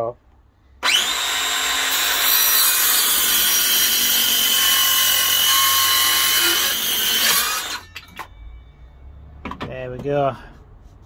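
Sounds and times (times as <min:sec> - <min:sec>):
circular saw cutting wood: 0:00.8 - 0:07.9.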